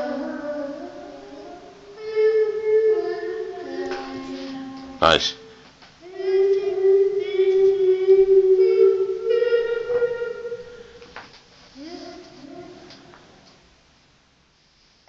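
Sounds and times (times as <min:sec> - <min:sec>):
child singing with echo: 0:00.0 - 0:11.2, 0:11.8 - 0:13.5.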